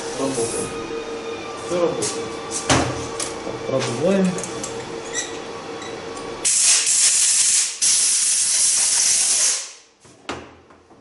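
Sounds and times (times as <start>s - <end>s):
compressed air hissing blast: 6.4s - 9.9s.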